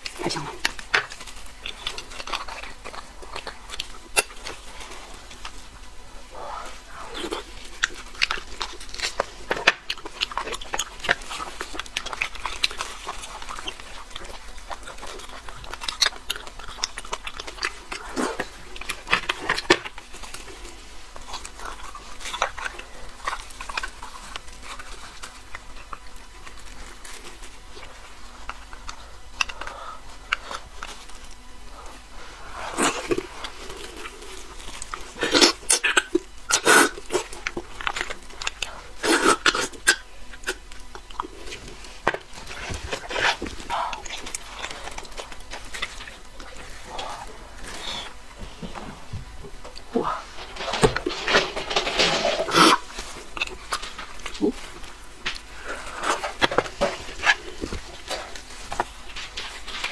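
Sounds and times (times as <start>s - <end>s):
wet slurping mouth sounds: 35.2s - 37.3s.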